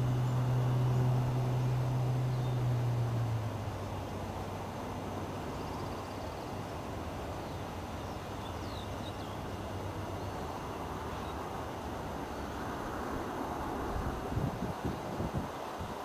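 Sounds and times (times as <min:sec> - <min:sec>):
faint high bird chirps: 0:00.0 - 0:03.3
low hum: 0:00.0 - 0:05.8
low outdoor background rumble: 0:00.0 - 0:15.4.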